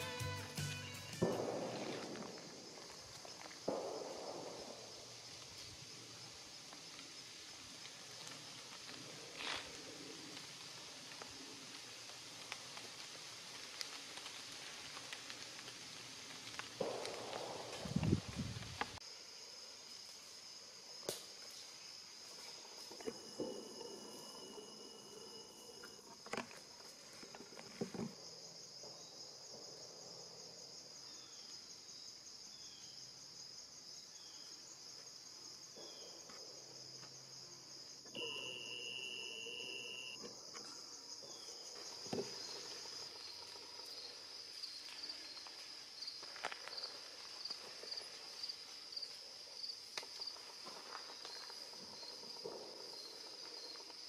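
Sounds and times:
crickets trilling: 0:00.0 - 0:54.0
steady high tone: 0:38.1 - 0:40.2.

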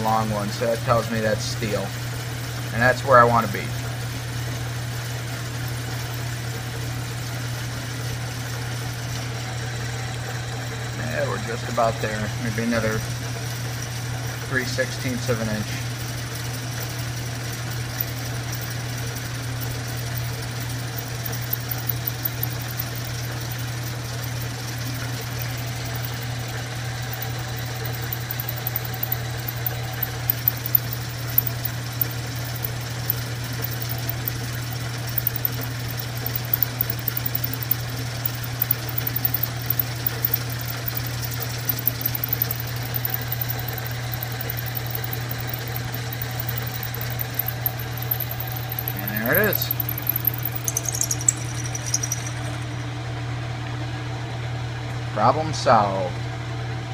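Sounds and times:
milling machine motor hum: 0:00.0 - 0:53.0
sharp ticks from drill cutting: 0:11.0 - 0:52.8.

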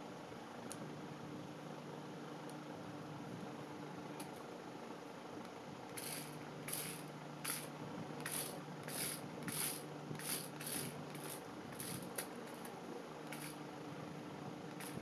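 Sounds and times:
low toy car motor hum: 0:05.9 - 0:13.7, 0:14.6 - 0:15.0.

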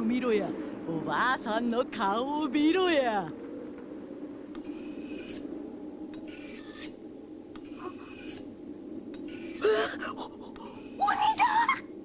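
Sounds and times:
low steady hum: 0:00.0 - 0:12.0
knife scraping on whetstone: 0:04.6 - 0:05.5, 0:06.2 - 0:07.0, 0:07.6 - 0:08.5, 0:09.2 - 0:09.6, 0:10.6 - 0:11.1.

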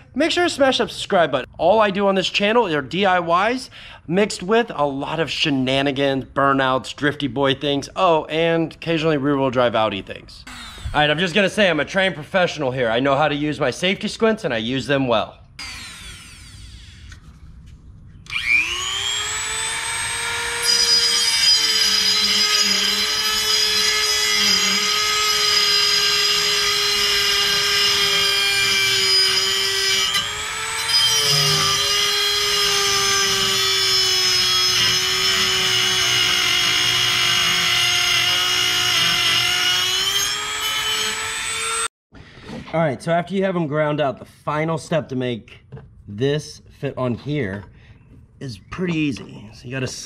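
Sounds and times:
rotary tool grinding metal: 0:15.6 - 0:17.2, 0:18.3 - 0:41.9.

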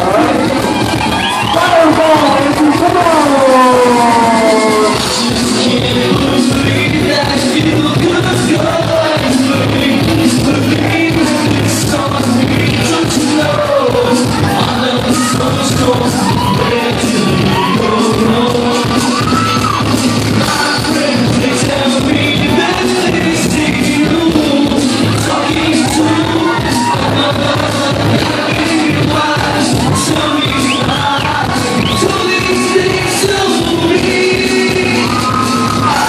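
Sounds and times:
man singing into a microphone: 0:00.0 - 0:00.8, 0:01.4 - 0:36.0
audience yelling: 0:00.0 - 0:06.4, 0:14.2 - 0:20.0, 0:25.2 - 0:27.4, 0:34.4 - 0:36.0
dance-pop song over loudspeakers: 0:00.0 - 0:36.0.

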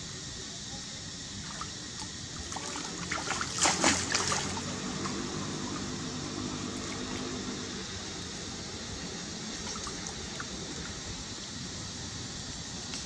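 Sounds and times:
moving water: 0:01.2 - 0:13.0
monkeys splashing in water: 0:01.4 - 0:05.9.

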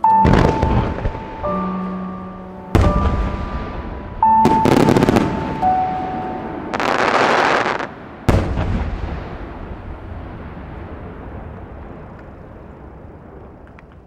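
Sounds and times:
song playing faintly: 0:00.0 - 0:06.7
fireworks bursting with booms: 0:00.2 - 0:01.7, 0:02.7 - 0:14.0
fireworks crackling rush: 0:02.8 - 0:05.9, 0:06.7 - 0:14.0.

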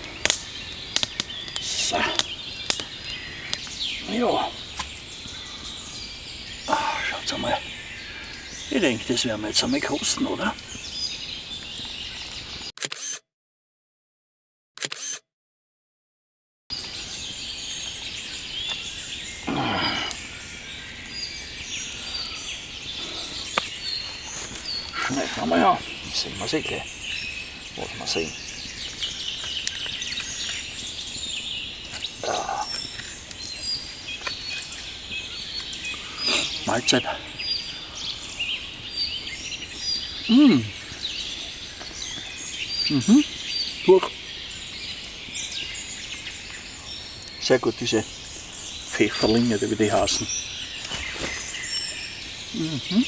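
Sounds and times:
songbirds chirping: 0:00.0 - 0:12.7, 0:16.7 - 0:53.0
man humming while eating: 0:52.6 - 0:53.0.

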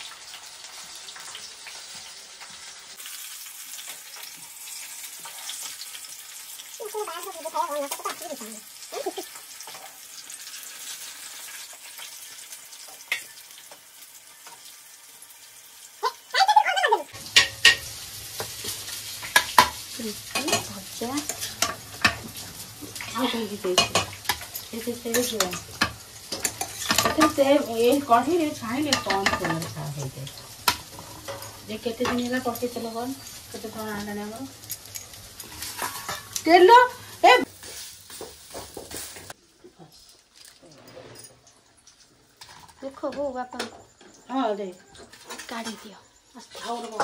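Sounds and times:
fritters sizzling in oil: 0:00.0 - 0:47.0
plates and spoons clattering: 0:17.3 - 0:28.0, 0:28.8 - 0:33.6, 0:34.6 - 0:36.5, 0:43.6 - 0:47.0.

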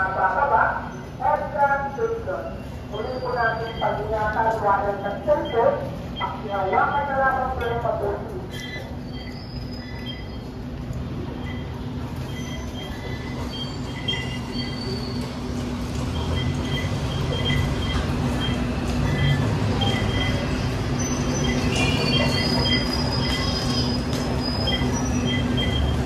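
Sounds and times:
train humming at platform: 0:00.0 - 0:26.0
short electronic beeps from gates: 0:08.5 - 0:10.5, 0:11.4 - 0:15.2, 0:16.1 - 0:26.0.

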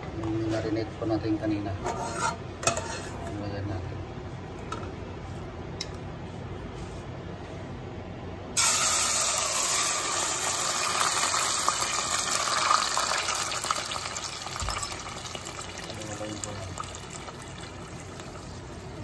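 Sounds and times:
meat sizzling in hot oil: 0:08.6 - 0:19.0.

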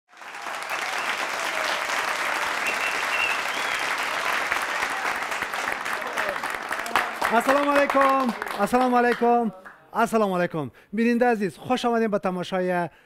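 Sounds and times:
audience applauding: 0:00.1 - 0:09.8.

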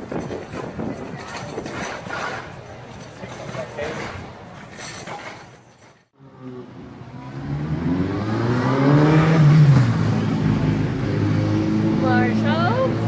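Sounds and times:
vehicle engine accelerating past: 0:06.2 - 0:13.0.

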